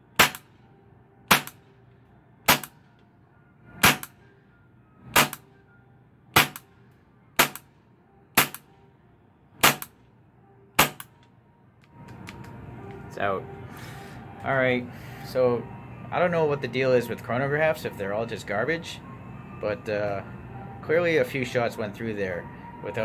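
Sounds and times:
airsoft pistol shots: 0:00.2 - 0:00.4, 0:01.3 - 0:01.6, 0:02.5 - 0:02.8, 0:03.8 - 0:04.1, 0:05.2 - 0:05.4, 0:06.4 - 0:06.6, 0:07.4 - 0:07.6, 0:08.4 - 0:08.6, 0:09.6 - 0:09.9, 0:10.8 - 0:11.1.

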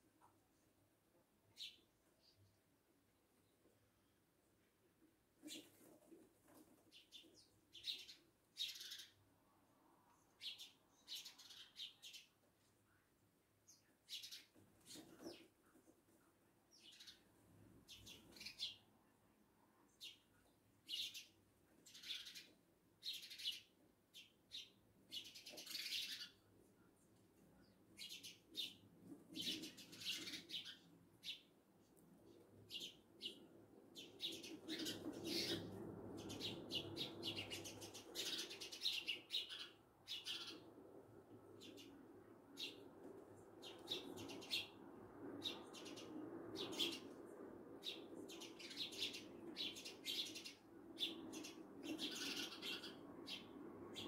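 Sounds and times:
sparrows chirping: 0:01.5 - 0:02.5, 0:06.9 - 0:09.3, 0:10.3 - 0:12.5, 0:13.7 - 0:15.5, 0:16.7 - 0:18.9, 0:19.9 - 0:26.5, 0:27.5 - 0:31.6, 0:32.2 - 0:44.8, 0:45.4 - 0:54.0.

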